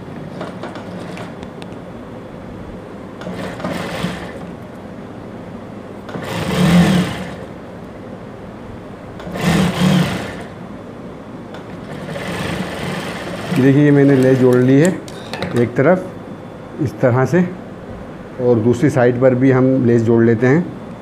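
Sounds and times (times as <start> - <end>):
sewing machine stitching: 0.3 - 1.4, 3.2 - 4.5, 6.1 - 7.5, 9.2 - 10.6, 11.7 - 14.9.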